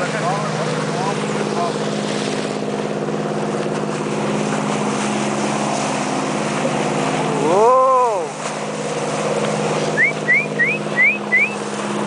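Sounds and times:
motorboat engine running: 0.0 - 12.0
water noise: 0.0 - 12.0
wind: 0.0 - 12.0.

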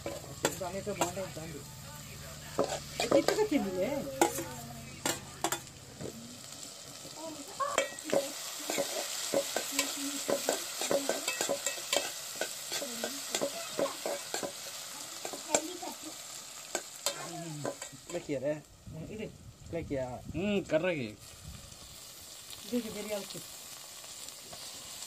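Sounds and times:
metal spoon scraping a pot: 0.0 - 1.2, 2.6 - 3.6, 7.8 - 14.6
vegetables sizzling in a pot: 0.0 - 25.0.

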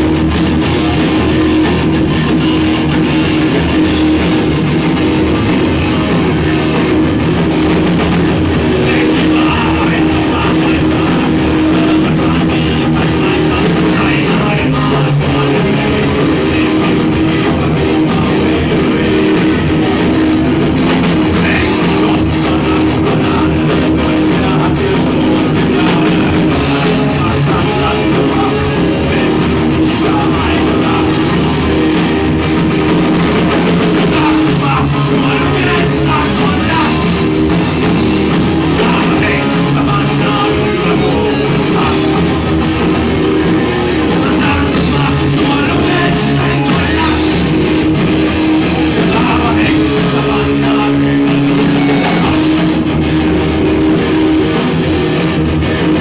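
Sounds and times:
bass guitar: 0.0 - 56.0
drum kit: 0.0 - 56.0
electric guitar: 0.0 - 56.0
person singing: 8.7 - 32.2, 33.2 - 53.1.

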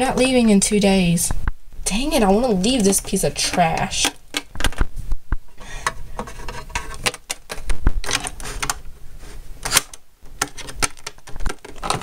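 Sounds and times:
plastic toys clicking and clattering: 2.6 - 4.8, 5.7 - 8.8, 9.6 - 12.0.

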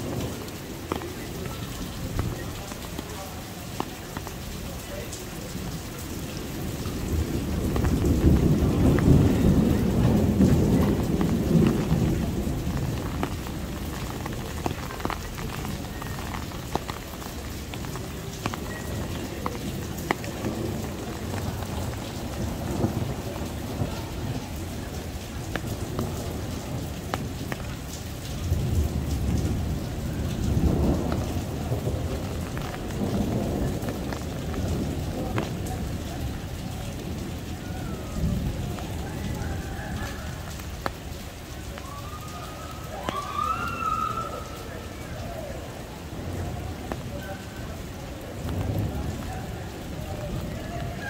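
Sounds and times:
heavy rain falling: 0.0 - 51.0
thunder rumbling: 0.0 - 51.0.

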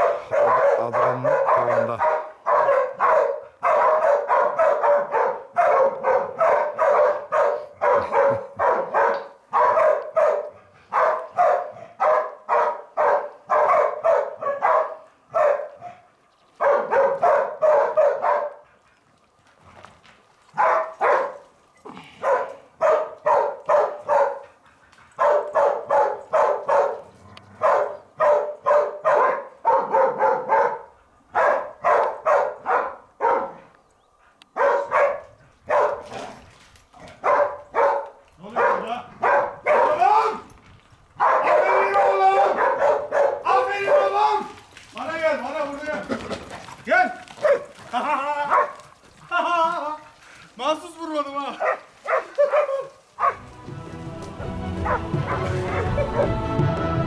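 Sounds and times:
dogs barking: 0.0 - 18.9, 20.5 - 33.7, 34.3 - 40.4, 41.2 - 44.5, 46.6 - 49.0, 51.5 - 53.5, 54.8 - 56.5.

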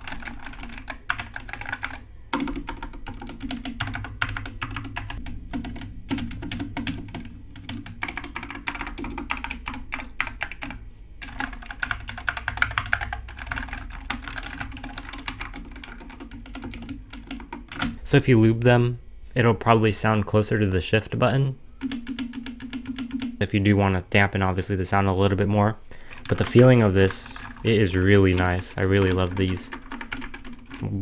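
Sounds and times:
mechanical keyboard typing: 0.0 - 18.0, 21.8 - 23.4, 26.1 - 31.0.

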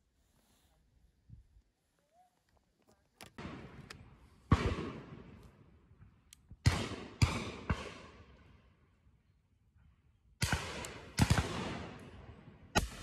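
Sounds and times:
shotgun shots echoing: 3.3 - 5.4, 6.6 - 8.4, 10.4 - 13.0.

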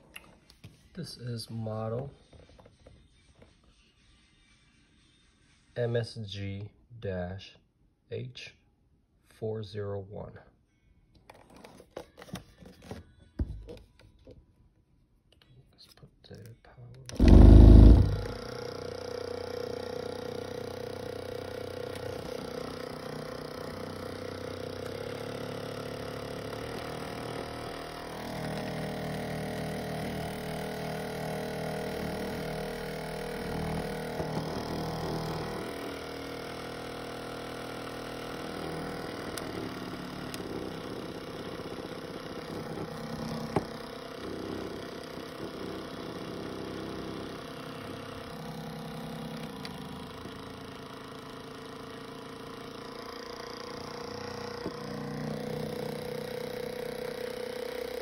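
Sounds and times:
massager motor humming: 17.1 - 58.0.

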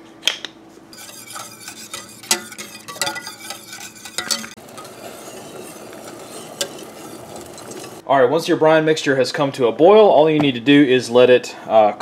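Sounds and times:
brine hissing on burner: 1.0 - 8.0
metal spoon clinking in pot: 1.0 - 8.0.

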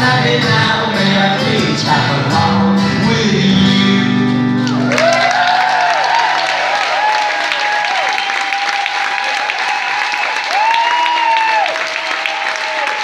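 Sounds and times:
audience applauding: 4.6 - 13.0
crowd cheering and whooping: 4.6 - 13.0.

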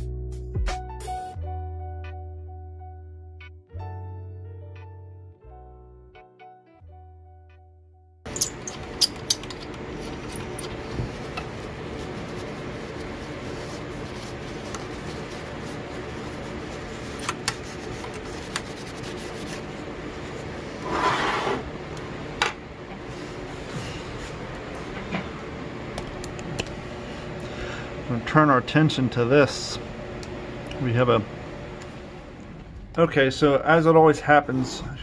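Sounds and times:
paper towel rubbing a panel: 10.8 - 21.7.

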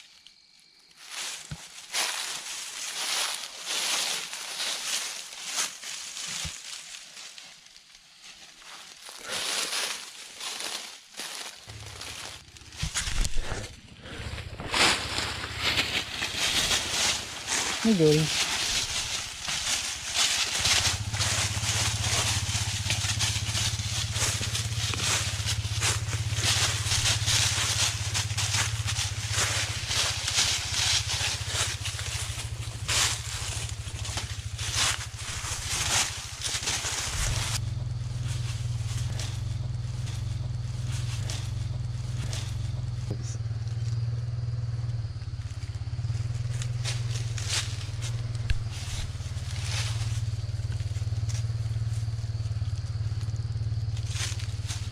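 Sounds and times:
footsteps crunching dry leaves: 0.8 - 43.6, 45.0 - 54.9
low rumble: 11.6 - 54.4.

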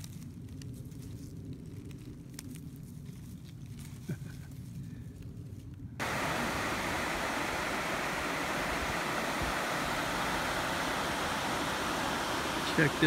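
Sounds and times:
river water rushing over rocks: 6.0 - 13.0.

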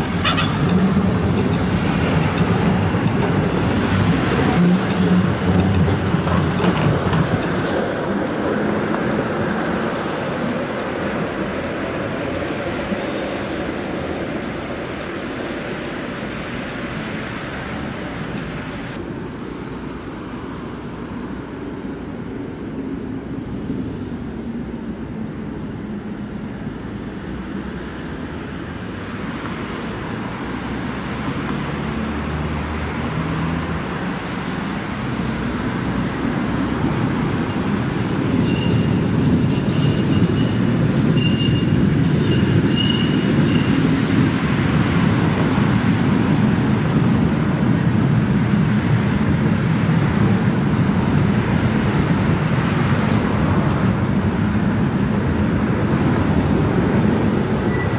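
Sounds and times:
tram wheels squealing: 0.0 - 14.3, 16.0 - 19.0, 36.8 - 44.5, 57.6 - 57.9
tram rumbling past: 0.0 - 57.9.

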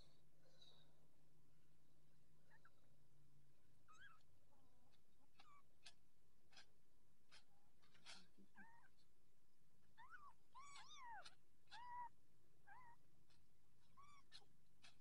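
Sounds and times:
kittens mewing: 10.0 - 12.1.

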